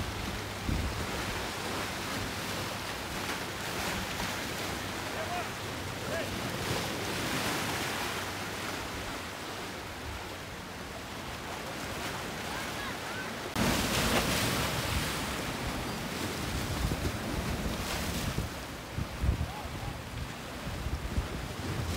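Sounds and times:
wind rumbling on microphone: 0.0s - 2.4s, 14.7s - 21.9s
choppy water splashing: 0.0s - 21.9s
surf splashing against rocks: 0.0s - 21.9s.

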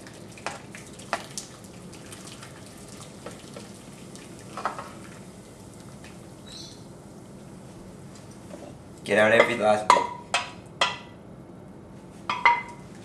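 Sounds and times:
thick sauce pouring and plopping: 0.0s - 6.2s.

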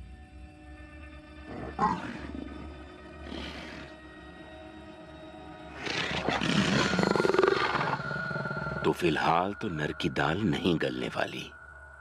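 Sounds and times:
leopard snarling and growling: 1.4s - 4.1s, 5.7s - 8.9s.

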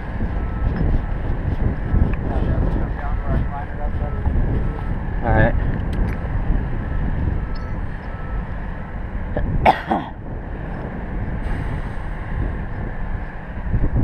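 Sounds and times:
wind buffeting microphone: 0.0s - 14.0s
cough-like vocal sound: 9.6s - 10.2s.

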